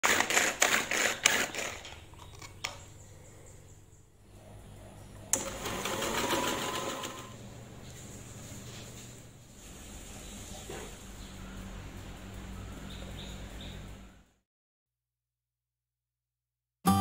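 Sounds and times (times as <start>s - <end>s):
electric blender pulsing: 5.4s - 7.4s.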